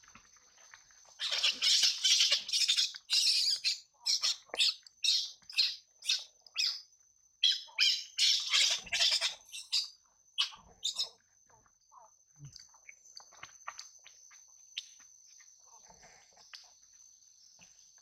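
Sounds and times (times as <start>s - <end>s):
baby monkey shrieking: 1.2s - 6.8s, 7.4s - 11.1s.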